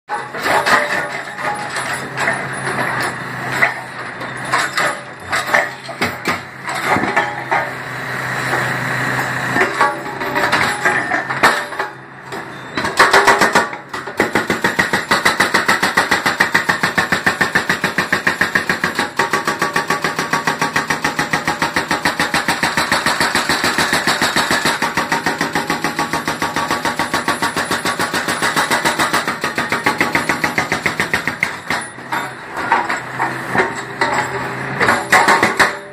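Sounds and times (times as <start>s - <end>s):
hydraulic breaker hammering concrete: 0.1s - 35.9s
knocks and clanks: 27.0s - 35.9s.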